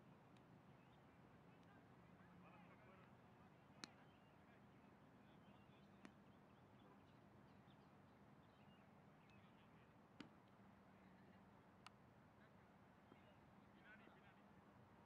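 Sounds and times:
faint sharp clicks: 3.8 - 4.0, 11.8 - 12.0.

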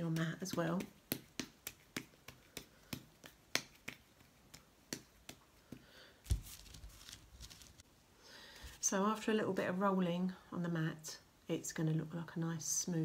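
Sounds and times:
clay ball clicking between palms: 0.0 - 6.4
clay ball thumping on mat: 0.0 - 7.0.

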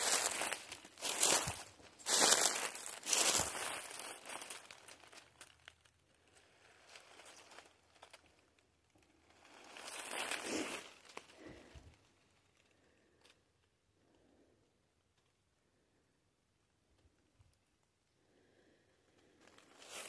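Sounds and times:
footsteps crunching through dry leaves: 0.0 - 5.5, 9.4 - 11.6, 19.8 - 20.0.

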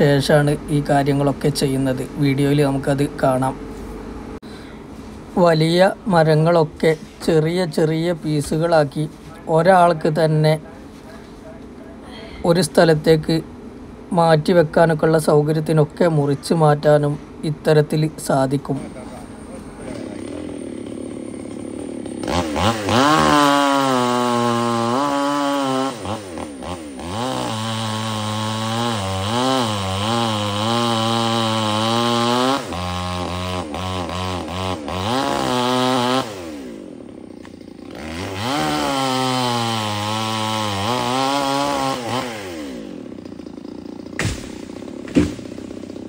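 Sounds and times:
chainsaw revving: 0.0 - 3.6, 18.7 - 46.0
sharp knocks: 44.1 - 45.6.

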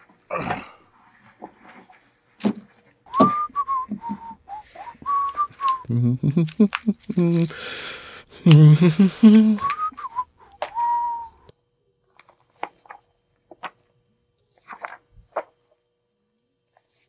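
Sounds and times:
paper rustling and tapping: 1.2 - 4.2, 5.0 - 5.8, 6.5 - 7.5, 12.2 - 13.9, 14.6 - 15.6
person whistling: 3.1 - 6.5, 8.5 - 11.4.

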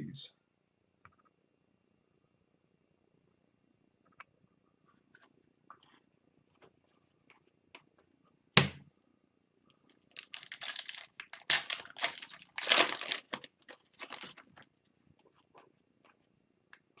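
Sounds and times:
wrapper crinkling: 10.0 - 14.6
foil card pack tearing: 10.1 - 14.6.

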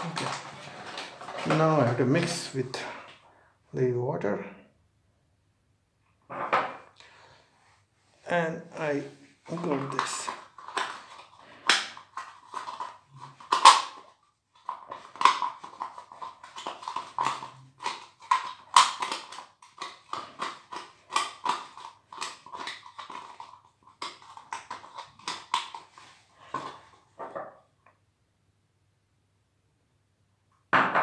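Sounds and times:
paste stirring scrapes against plastic: 0.0 - 1.6, 9.1 - 27.1.

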